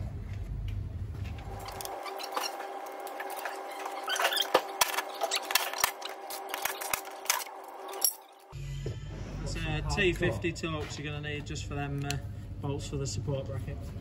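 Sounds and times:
power tool motor running: 1.4 - 8.6.

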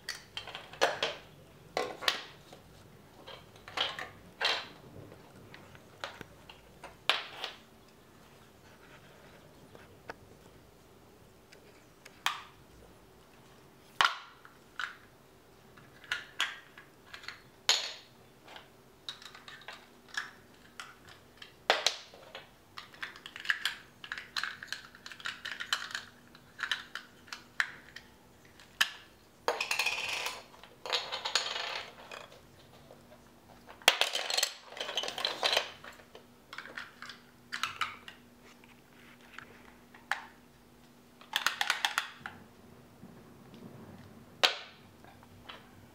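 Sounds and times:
plastic bricks clicking and knocking: 0.0 - 2.6, 3.2 - 4.8, 15.8 - 32.9, 33.5 - 38.2, 41.2 - 42.4
plastic bricks clattering: 0.1 - 2.6, 3.2 - 4.8, 15.8 - 38.2, 41.2 - 42.4.

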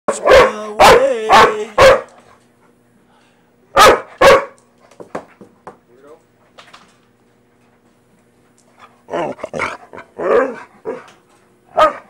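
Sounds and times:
dog barking: 0.1 - 2.2, 3.8 - 4.6, 11.7 - 12.0.

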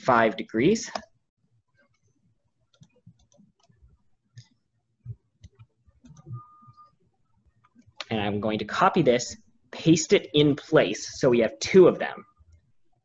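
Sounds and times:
mouse and keyboard clicks: 5.4 - 6.8
steady beep: 6.2 - 7.0.

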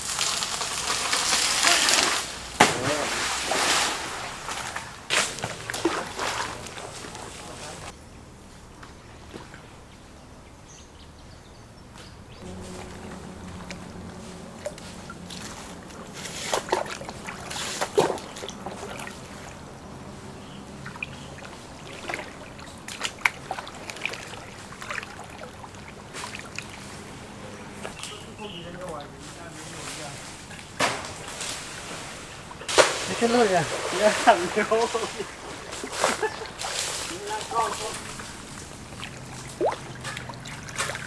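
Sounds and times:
steady low hum: 12.2 - 28.0
liquid trickling and pouring: 14.6 - 19.6, 20.7 - 27.9, 33.6 - 41.0.

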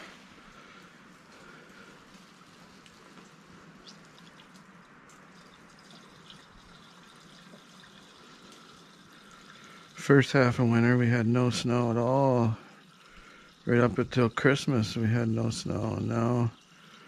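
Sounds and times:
gasoline trickling through funnel: 0.0 - 17.0.

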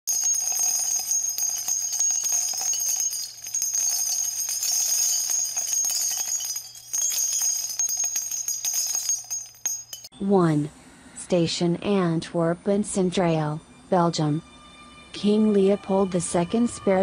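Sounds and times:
jingling bells intro music: 0.1 - 10.1.

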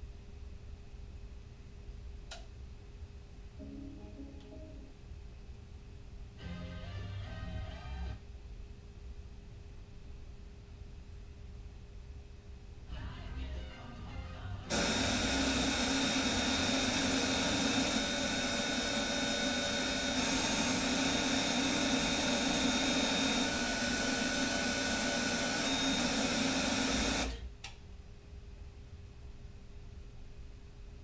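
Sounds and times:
harsh buzzing from tv: 6.4 - 8.2, 12.9 - 27.5.

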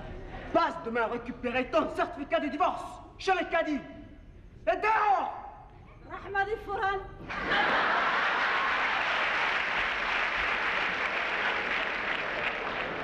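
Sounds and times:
audience applause: 7.4 - 13.0.

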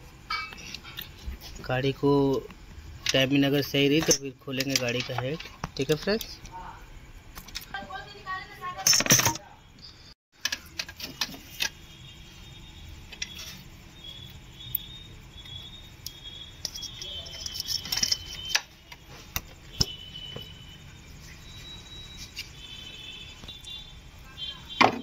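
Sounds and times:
hand tools clinking on metal: 3.0 - 6.3, 16.6 - 18.7.

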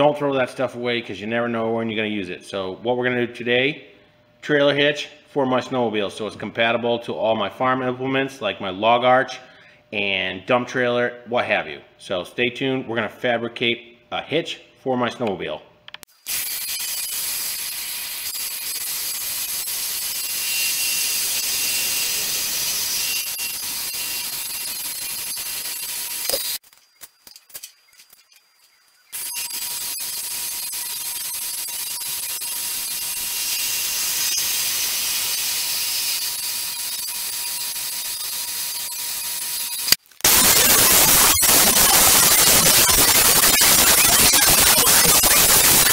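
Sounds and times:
bandsaw cutting metal: 16.2 - 26.6, 29.2 - 45.9.

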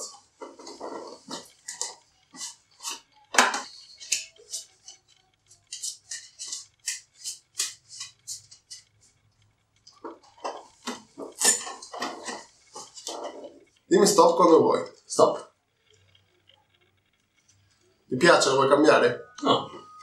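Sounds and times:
playing cards being shuffled: 0.4 - 8.9.

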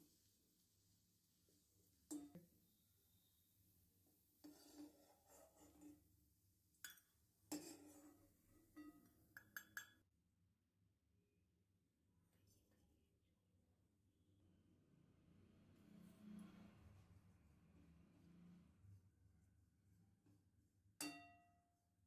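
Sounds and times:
metal spoon scraping a pan: 4.4 - 6.1, 6.8 - 10.0.

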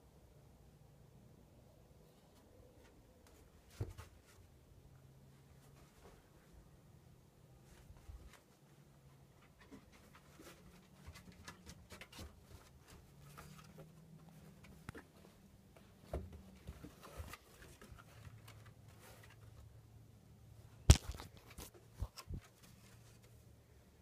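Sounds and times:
puppy scratching and ticking: 9.3 - 15.1.

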